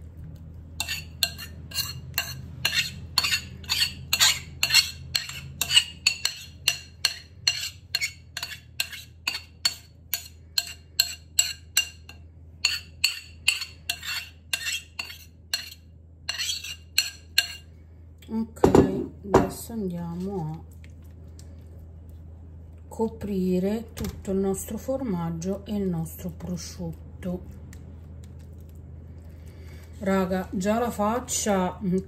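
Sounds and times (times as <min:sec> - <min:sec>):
metal spatula scraping ceramic bowl: 0:00.8 - 0:17.7.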